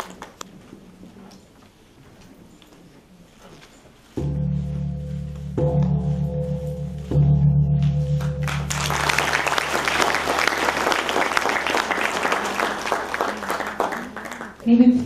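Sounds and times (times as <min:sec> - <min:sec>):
gong struck with padded mallet: 0:04.2 - 0:08.8
audience applause: 0:08.4 - 0:14.7.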